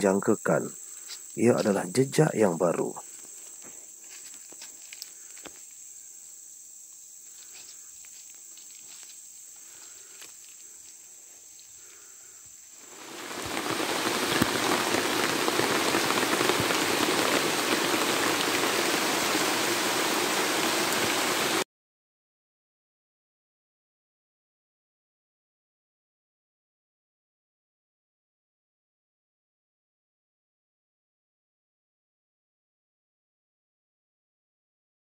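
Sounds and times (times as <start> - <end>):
heavy rain on forest canopy: 0.0 - 6.4, 7.2 - 11.0, 11.6 - 21.6
insects trilling: 0.0 - 21.6
footsteps on dry leaves: 3.0 - 5.8, 7.2 - 11.2.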